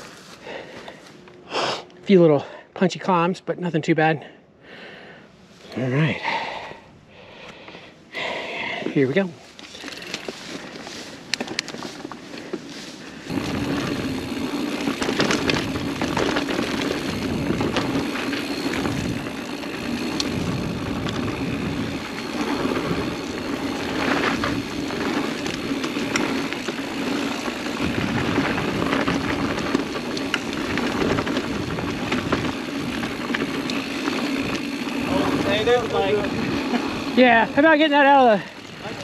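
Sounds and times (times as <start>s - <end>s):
bike tyres on dirt: 0.0s - 1.6s, 5.0s - 39.0s
bike clicks and knocks: 9.6s - 37.2s
steady buzz: 9.6s - 39.0s.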